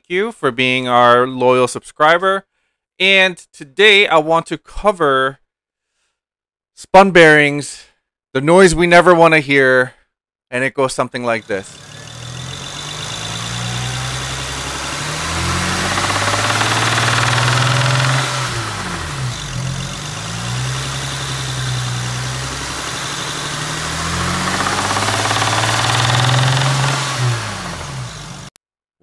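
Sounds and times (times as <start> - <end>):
car engine revving: 11.4 - 28.5
engine knocking: 11.4 - 28.5.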